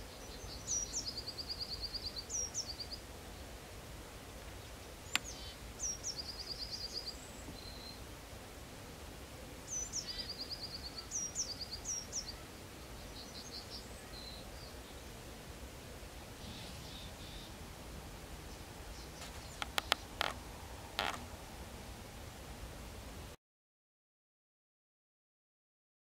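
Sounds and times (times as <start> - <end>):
songbird singing: 0.0 - 3.6, 4.5 - 8.2, 9.6 - 15.2, 16.3 - 17.6, 18.3 - 21.3.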